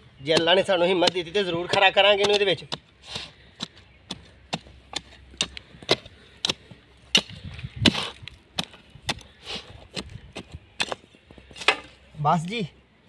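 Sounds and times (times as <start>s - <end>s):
metal trowel scraping stony soil: 0.6s - 12.3s.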